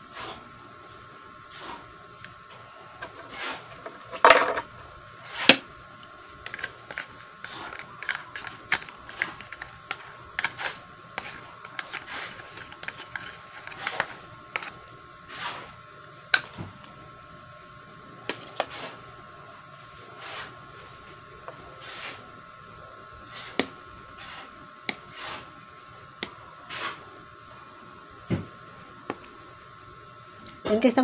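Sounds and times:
spoon scraping plastic cup: 6.4s - 15.8s
plastic cup crinkling: 6.5s - 14.8s.

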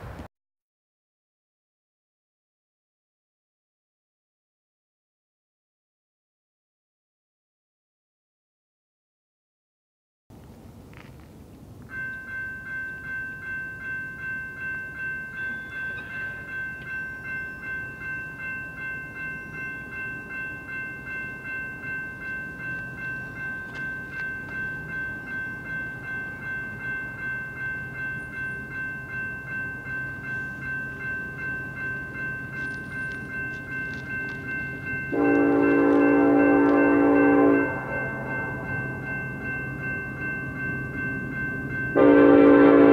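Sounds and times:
crossing warning bell ringing: 11.8s - 42.9s
locomotive horn: 35.1s - 39.0s, 42.0s - 42.9s.

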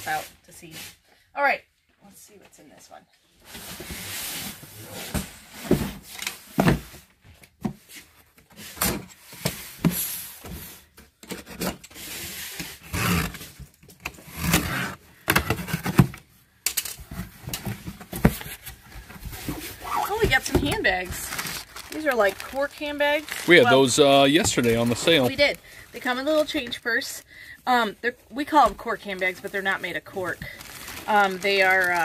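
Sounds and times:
box cutter slitting tape: 11.6s - 15.0s.

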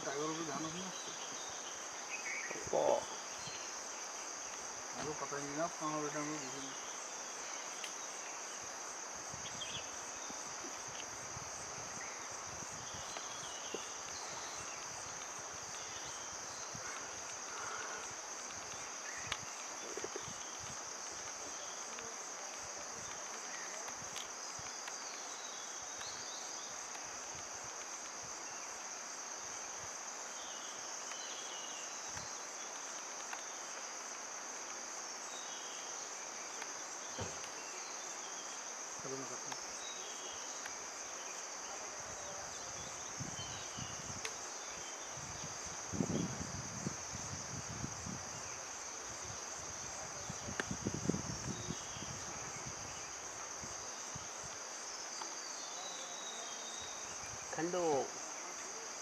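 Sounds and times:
insects droning: 0.0s - 59.0s.

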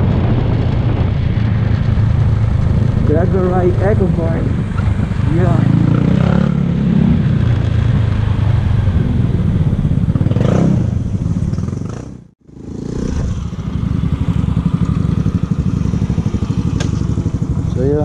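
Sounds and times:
motor scooter engine running: 12.5s - 18.0s.

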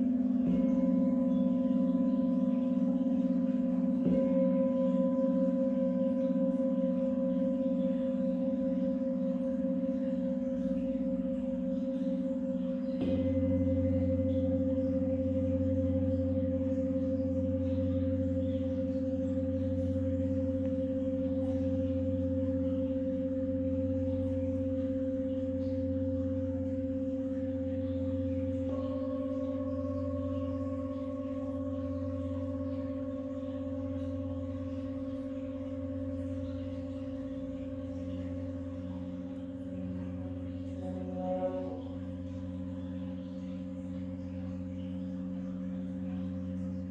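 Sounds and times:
large singing bowl ringing: 0.0s - 46.9s
small singing bowl struck: 0.0s - 46.9s
stick rubbing singing bowl rim: 0.0s - 46.9s.

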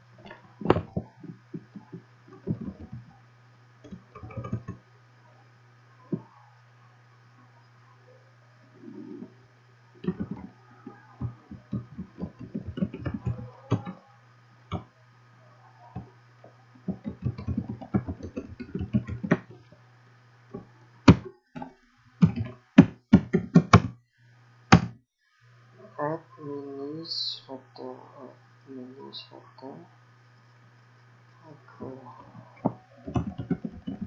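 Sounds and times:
low electrical hum: 0.0s - 34.0s
computer keyboard typing: 0.7s - 3.1s, 3.8s - 4.8s, 10.0s - 14.0s, 16.9s - 19.6s, 22.2s - 23.9s, 32.6s - 34.0s.

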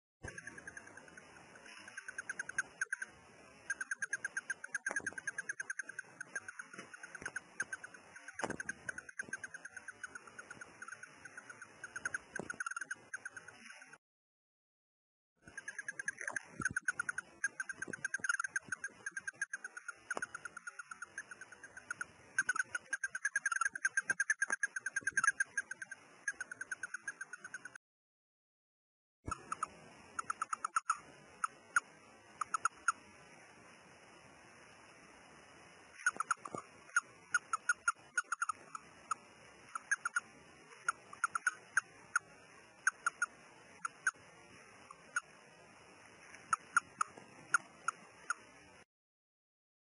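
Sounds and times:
hamster squeaky chirping: 0.2s - 14.0s, 15.4s - 27.8s, 29.3s - 33.0s, 36.0s - 45.3s, 46.2s - 48.5s.

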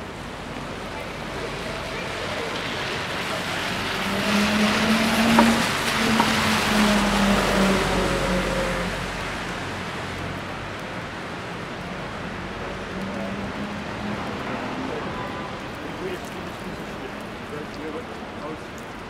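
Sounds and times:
tyre hiss on wet road: 0.4s - 14.8s
vehicle engine hum: 0.9s - 9.3s.

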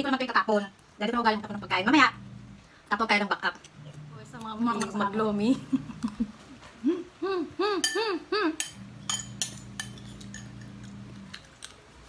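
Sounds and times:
low hum: 1.2s - 2.8s
woman humming: 3.9s - 8.6s
spoon clinking on glass bowl: 8.6s - 10.9s.

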